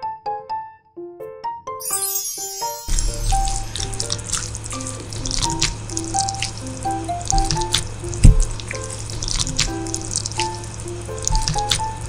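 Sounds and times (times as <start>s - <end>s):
light melody of short notes: 1.8s - 8.4s.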